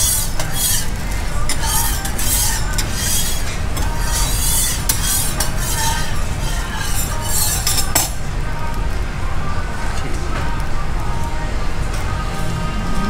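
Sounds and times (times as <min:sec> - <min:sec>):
spatula clacking on griddle: 0:00.0 - 0:08.2
metal spatula scraping griddle: 0:00.0 - 0:08.3.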